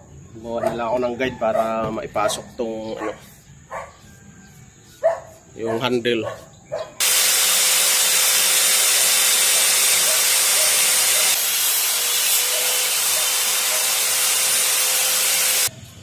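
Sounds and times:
circular saw cutting board: 0:07.0 - 0:15.7.

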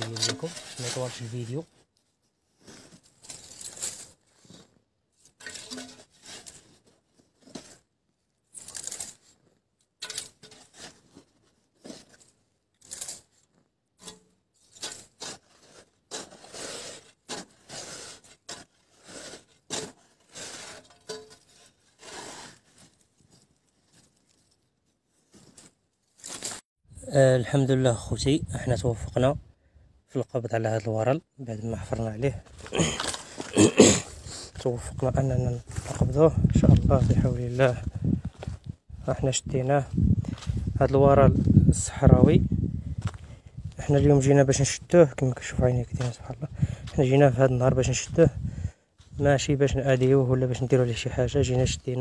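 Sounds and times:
hands scraping sandy soil: 0:00.0 - 0:01.7, 0:15.0 - 0:20.8, 0:21.9 - 0:23.0.

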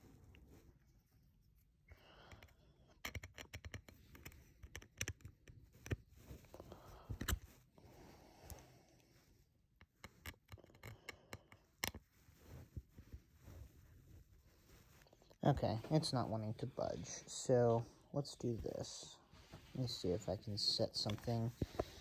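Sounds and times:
screwdriver clicking and scraping: 0:02.3 - 0:06.0, 0:07.2 - 0:07.5, 0:09.8 - 0:12.0.

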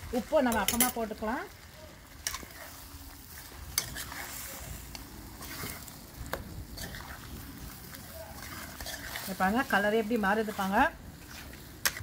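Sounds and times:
light sizzle: 0:00.0 - 0:12.0
spoon scraping food in a pan: 0:00.2 - 0:01.3, 0:02.1 - 0:12.0
spoon clinking against pan: 0:00.5 - 0:01.0.

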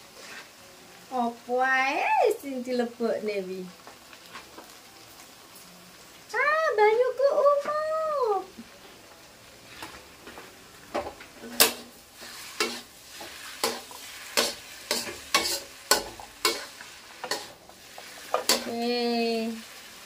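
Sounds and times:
faint sizzle: 0:00.0 - 0:20.0
spatula clanking against wok: 0:12.6 - 0:17.6, 0:18.3 - 0:18.7.

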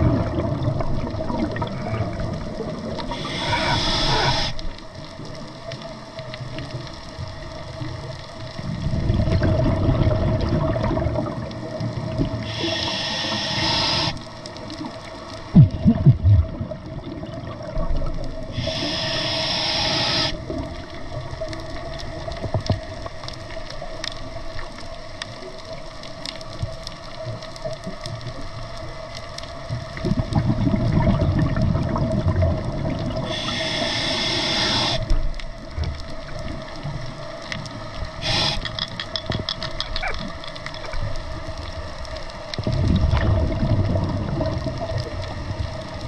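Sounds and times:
exhaled bubbles gurgling: 0:00.0 - 0:28.8, 0:29.4 - 0:46.0
regulator hissing inhalations: 0:03.1 - 0:04.6, 0:12.4 - 0:14.2, 0:18.5 - 0:20.4, 0:33.2 - 0:35.1, 0:38.2 - 0:38.9.

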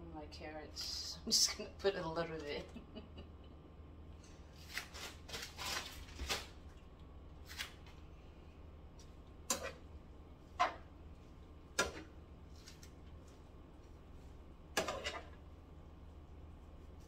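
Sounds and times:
wooden spatula scraping skillet: 0:09.5 - 0:09.8, 0:10.5 - 0:10.9, 0:14.8 - 0:15.4.

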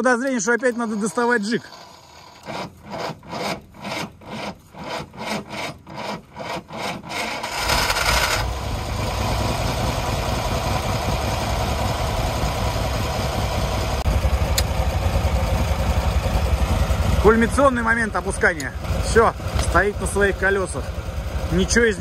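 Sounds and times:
truck engine cranking on starter: 0:00.3 - 0:13.1, 0:16.2 - 0:20.9
truck engine running: 0:07.4 - 0:22.0.

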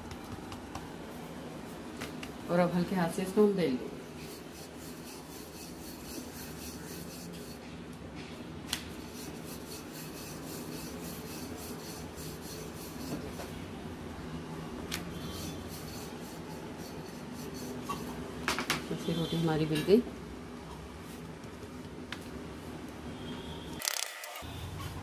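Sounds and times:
rolling pin rubbing dough: 0:04.0 - 0:07.7, 0:08.9 - 0:13.6, 0:15.1 - 0:18.2.

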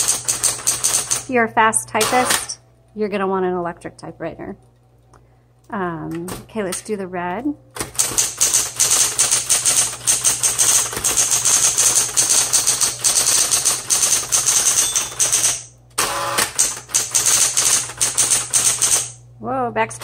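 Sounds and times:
typewriter keys striking: 0:00.0 - 0:01.3, 0:07.8 - 0:15.7, 0:16.4 - 0:19.2
typewriter motor hum: 0:00.0 - 0:01.3, 0:01.9 - 0:02.6, 0:07.8 - 0:19.2.

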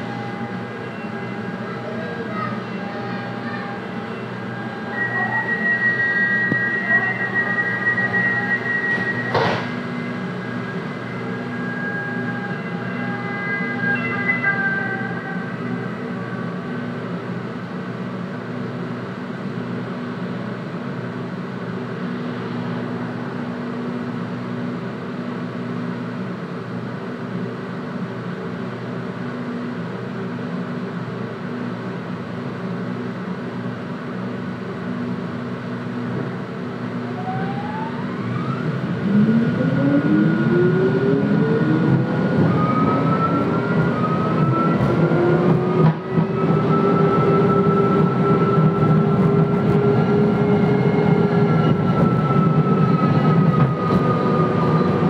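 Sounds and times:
tram interior hum: 0:00.0 - 0:55.0
electric traction drive whine: 0:36.8 - 0:55.0.

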